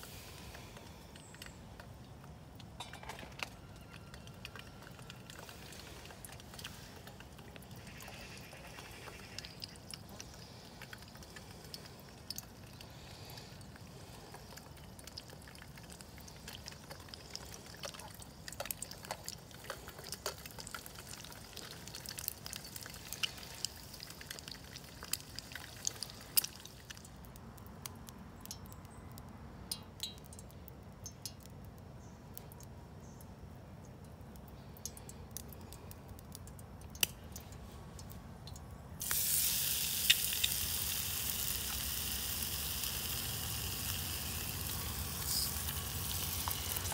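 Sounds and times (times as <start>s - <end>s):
oil crackling and spitting: 0.0s - 32.8s, 34.0s - 46.9s
egg sizzling in oil: 3.6s - 27.1s, 39.0s - 46.9s.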